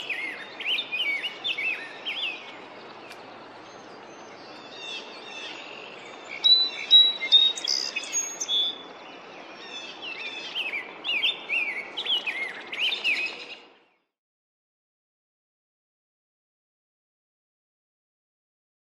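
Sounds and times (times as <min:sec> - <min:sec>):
bird singing warbled whistles: 0:06.4 - 0:08.8.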